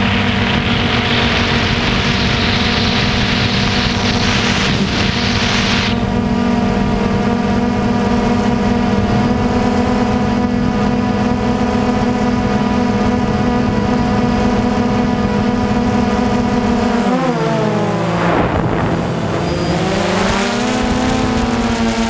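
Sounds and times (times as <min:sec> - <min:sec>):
wind hiss on microphone: 0:00.0 - 0:06.1
drone propellers humming: 0:00.0 - 0:22.0.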